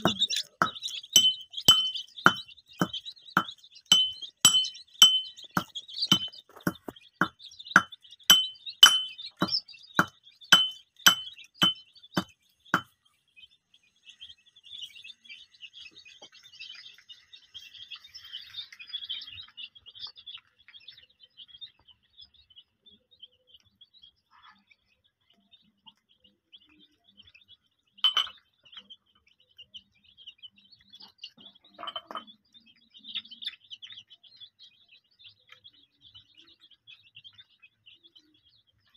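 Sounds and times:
sharp clink: 0.0s - 5.4s, 6.1s - 6.9s, 7.8s - 11.8s
chicks peeping softly: 0.0s - 38.9s.

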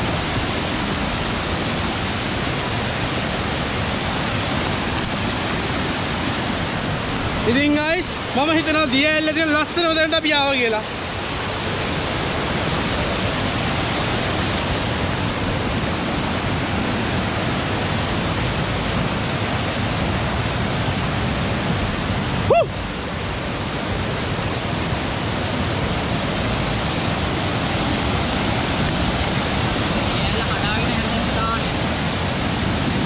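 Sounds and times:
waterfall rushing over rock: 0.0s - 33.0s.

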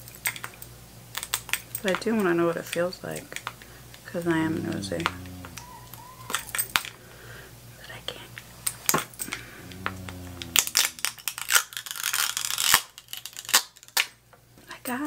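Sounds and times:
packaging tearing and crinkling: 11.2s - 14.1s.

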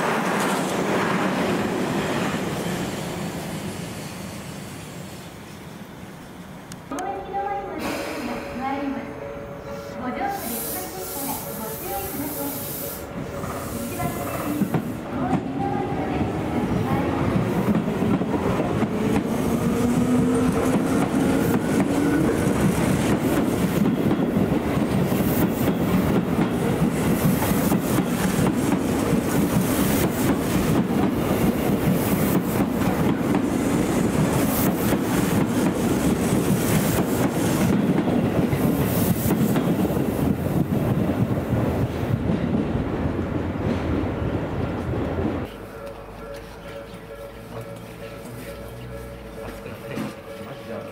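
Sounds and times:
train wheels clattering: 17.3s - 42.7s.

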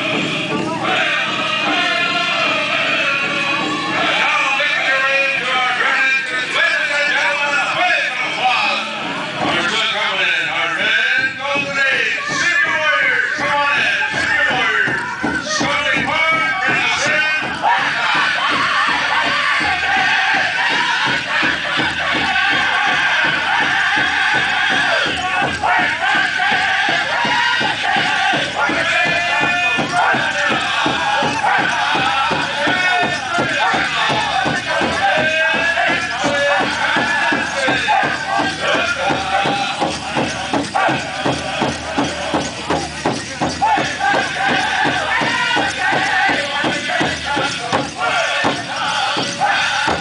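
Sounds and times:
large drum steady beat: 0.0s - 5.8s, 10.8s - 50.0s
high-pitched group singing: 0.0s - 7.5s, 13.6s - 50.0s.

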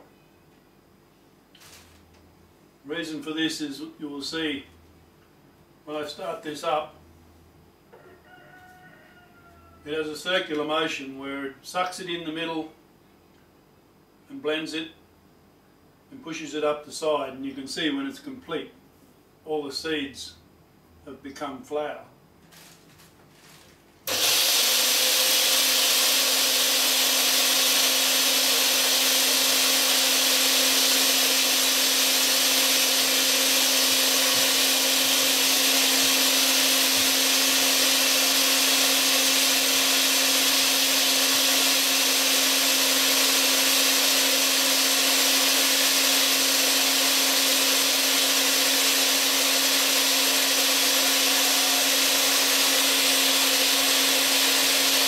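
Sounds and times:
blender grinding grain: 23.4s - 55.0s.

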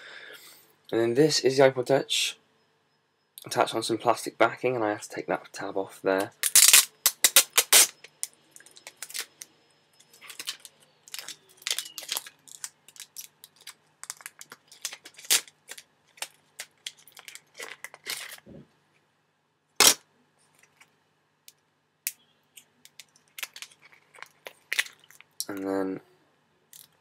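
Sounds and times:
small plastic clicks and crackles: 10.2s - 18.3s.

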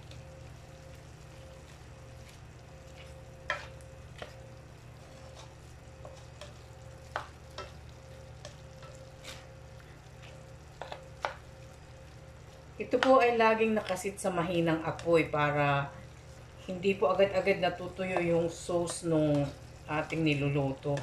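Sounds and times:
meat frying: 0.0s - 21.0s
spatula scraping frying pan: 2.0s - 11.5s.

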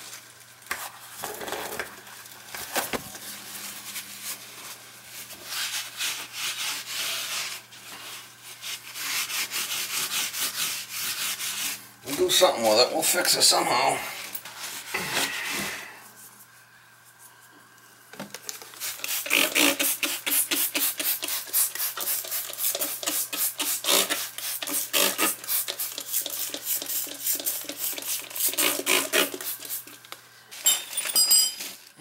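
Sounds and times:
paper towels rubbing on tile: 3.3s - 12.7s, 14.5s - 17.2s, 18.7s - 30.0s
spray bottle squirting: 18.6s - 30.0s.

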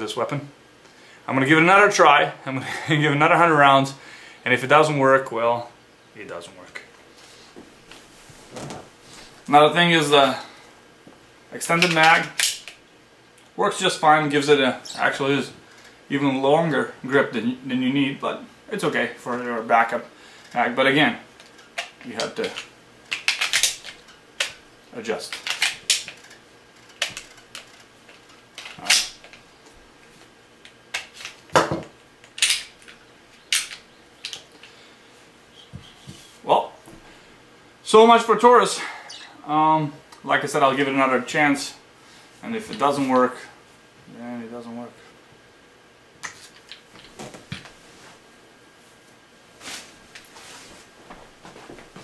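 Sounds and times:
short rustle: 47.2s - 52.0s.

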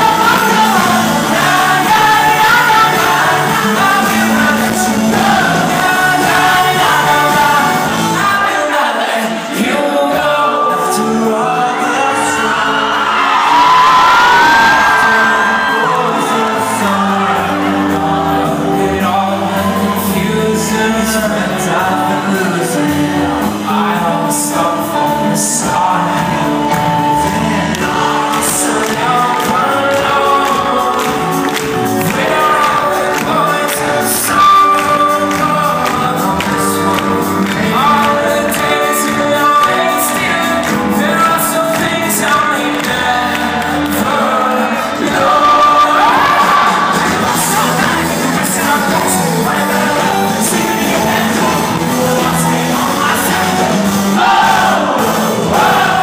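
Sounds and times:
lead singer singing: 0.0s - 56.0s
live pop band playing: 0.0s - 56.0s.

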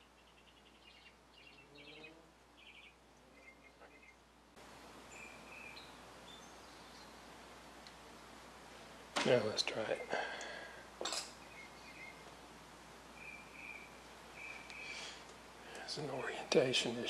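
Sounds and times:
faint room hiss: 0.0s - 17.0s.

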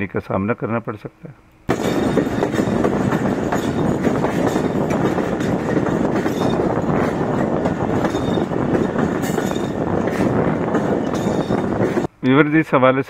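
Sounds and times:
train wheels rumbling on track: 1.7s - 12.1s.

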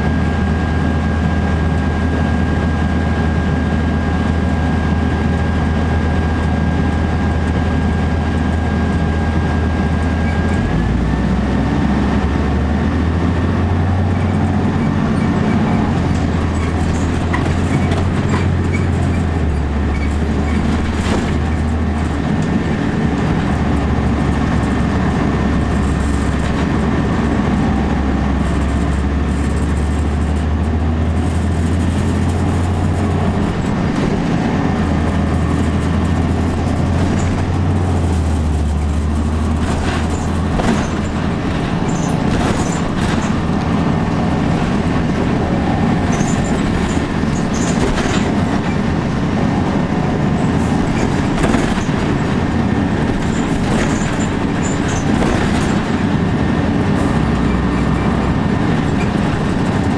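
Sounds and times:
bus diesel engine drone: 0.0s - 59.9s
road noise: 0.0s - 59.9s
rattles and clicks: 14.0s - 59.9s.

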